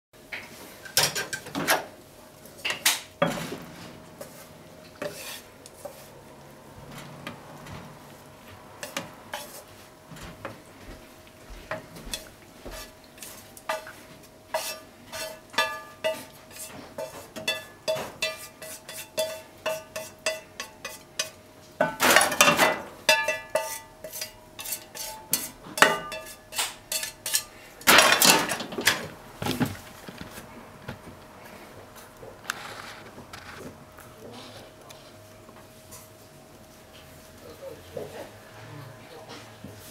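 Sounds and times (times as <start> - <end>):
chopsticks tapping and scraping a pan: 4.2 - 6.2, 8.8 - 10.9, 11.6 - 31.1.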